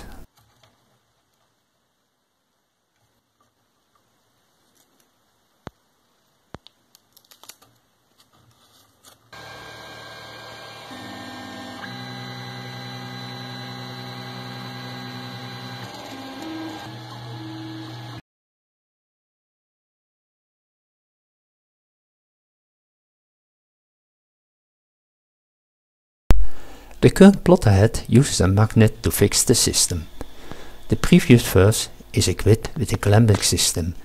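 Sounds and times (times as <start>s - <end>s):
three d printer motors whining: 9.4s - 18.2s, 29.0s - 32.1s.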